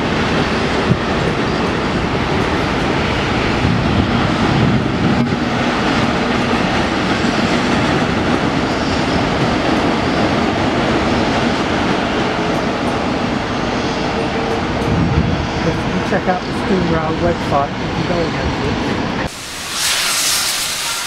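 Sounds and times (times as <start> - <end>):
train wheels clattering on rails: 0.0 - 15.1.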